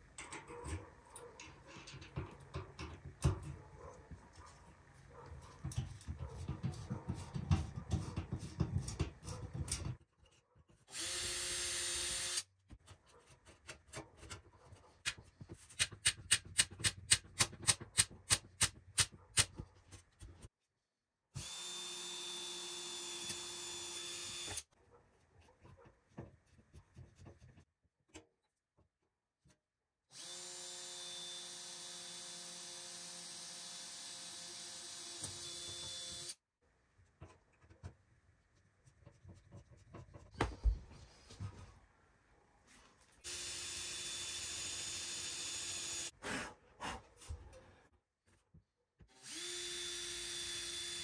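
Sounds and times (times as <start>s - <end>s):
knocks and scraping: 0.0s - 10.9s, 37.1s - 41.9s
cordless drill whining: 10.9s - 12.5s, 21.4s - 24.6s, 30.1s - 36.4s, 43.2s - 46.1s, 49.1s - 51.0s.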